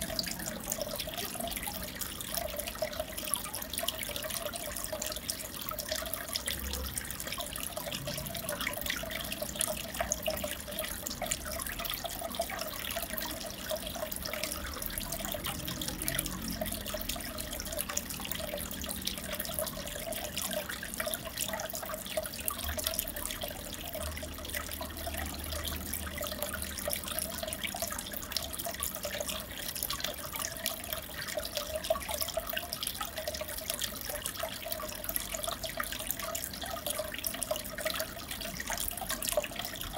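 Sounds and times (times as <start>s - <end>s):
aquarium water trickling and bubbling: 0.0s - 39.9s.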